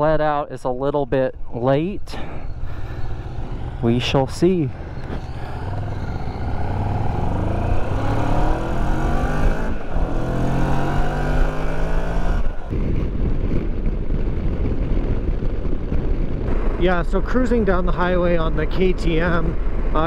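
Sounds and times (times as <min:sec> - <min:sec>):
wind rush: 0:01.4 - 0:20.0
motorcycle engine accelerating: 0:02.3 - 0:17.0.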